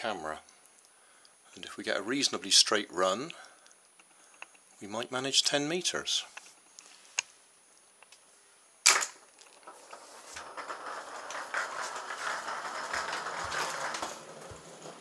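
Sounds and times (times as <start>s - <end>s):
wheels rattling on tiled floor: 9.4s - 15.0s
footsteps: 9.9s - 15.0s.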